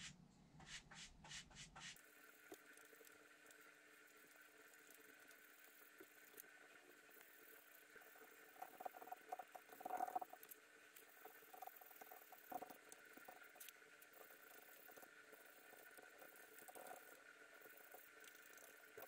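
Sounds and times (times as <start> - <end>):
paintbrush dabbing and scraping: 0.0 - 2.0.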